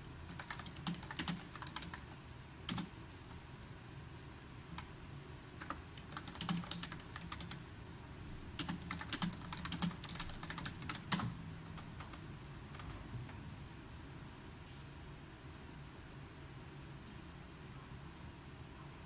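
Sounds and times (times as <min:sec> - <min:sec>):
typing on computer keyboard: 0:00.3 - 0:02.9, 0:05.6 - 0:07.6, 0:08.6 - 0:13.0.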